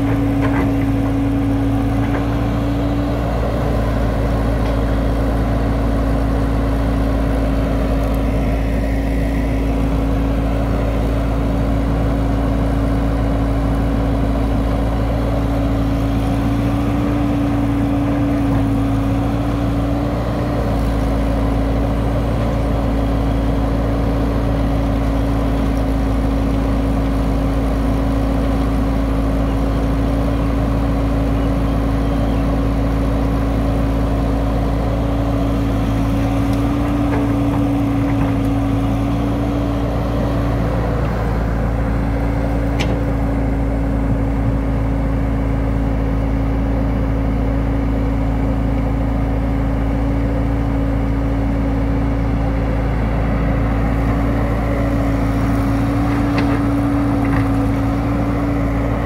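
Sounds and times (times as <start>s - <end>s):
soil being dug and loaded: 0.0s - 6.4s, 32.8s - 43.6s, 53.6s - 59.0s
excavator diesel engine running: 0.0s - 59.0s.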